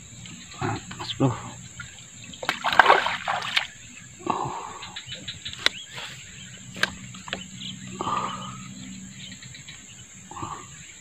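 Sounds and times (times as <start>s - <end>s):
rustling splash: 2.4s - 3.8s.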